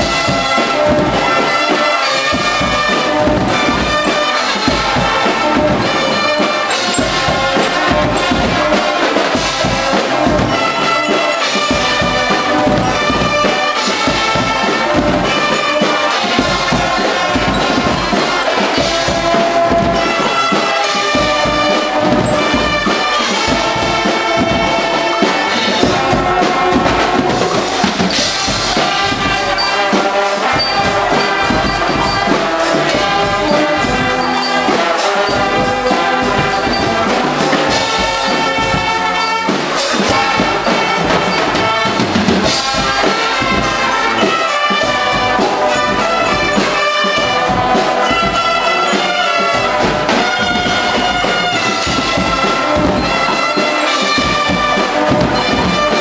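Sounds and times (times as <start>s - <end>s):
brass band playing: 0.0s - 56.0s
steady drum beat: 0.0s - 56.0s.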